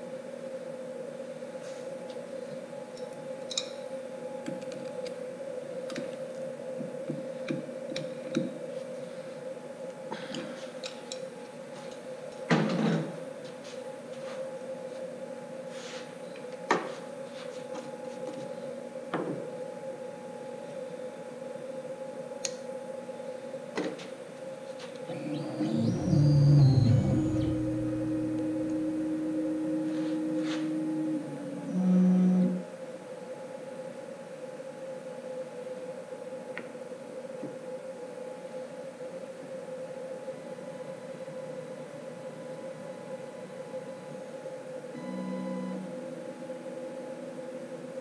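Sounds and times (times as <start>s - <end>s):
steady machine hum: 0.0s - 48.0s
motors starting with rising tone: 25.0s - 32.6s.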